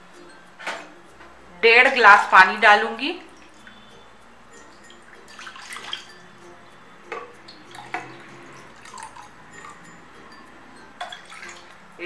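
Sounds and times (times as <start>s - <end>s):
water pouring into a glass: 4.6s - 6.5s, 7.3s - 9.9s, 11.0s - 11.8s
water pouring into a metal pan: 4.8s - 6.2s, 11.0s - 11.8s.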